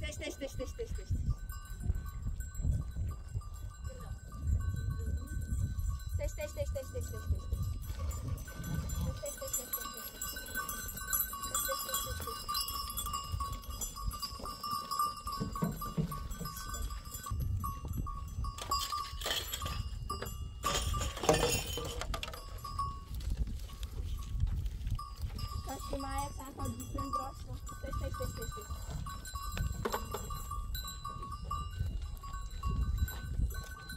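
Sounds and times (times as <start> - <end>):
goat bells ringing: 0.0 - 33.9
knocking and clatter: 15.4 - 16.7, 18.6 - 22.6, 29.6 - 30.4.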